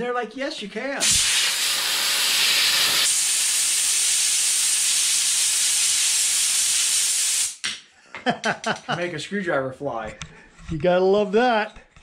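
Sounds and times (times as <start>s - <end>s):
air blow gun hissing: 1.0s - 7.6s.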